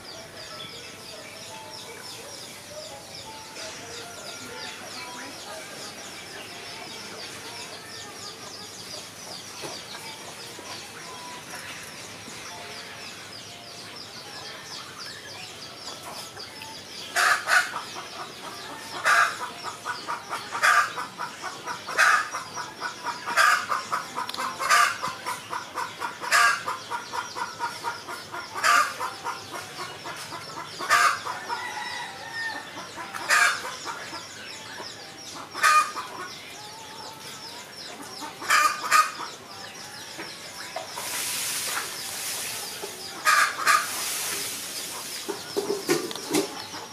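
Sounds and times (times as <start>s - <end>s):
small birds chirping: 0.0s - 46.9s
chicken cackling: 17.1s - 37.3s, 37.9s - 39.4s, 42.6s - 46.9s.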